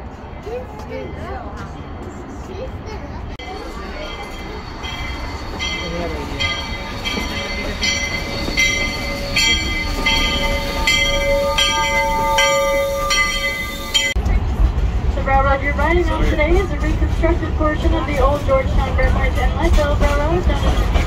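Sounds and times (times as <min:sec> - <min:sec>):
low train rumble: 0:00.0 - 0:21.0
steam locomotive bell ringing: 0:03.4 - 0:14.3.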